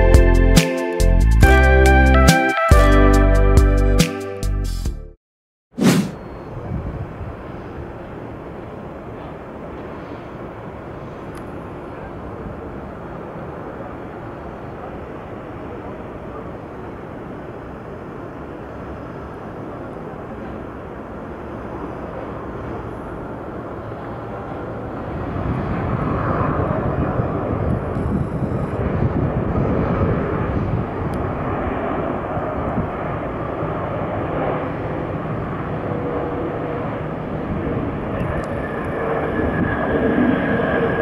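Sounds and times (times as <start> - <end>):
jet engines rushing: 5.8 - 41.0
faint steady whine: 33.2 - 41.0.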